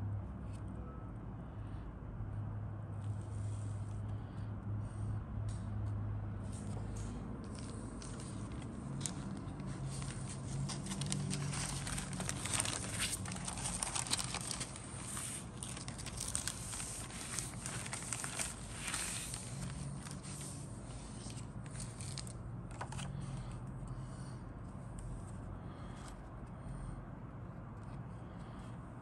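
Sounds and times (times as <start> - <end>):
plastic bag crinkling: 9.7 - 20.4.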